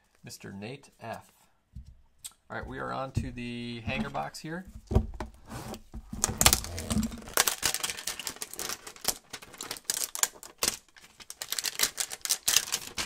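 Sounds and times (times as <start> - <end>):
cardboard box being torn open: 6.2 - 8.6.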